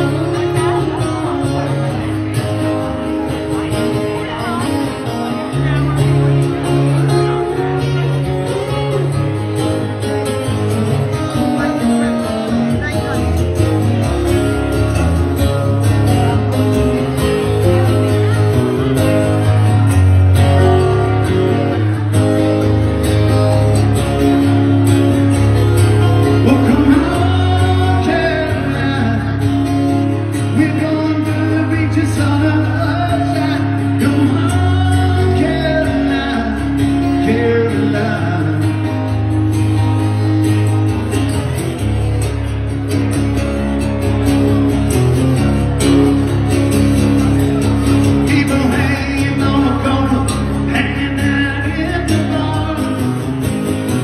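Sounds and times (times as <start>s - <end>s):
man singing: 0.0s - 9.2s, 25.2s - 40.2s, 47.6s - 54.0s
bass line: 0.0s - 54.0s
strummed acoustic guitar: 0.0s - 54.0s.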